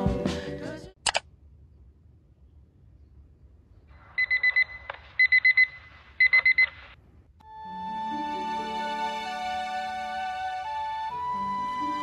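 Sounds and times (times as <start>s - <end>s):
electronic alarm beeping: 4.2s - 6.8s.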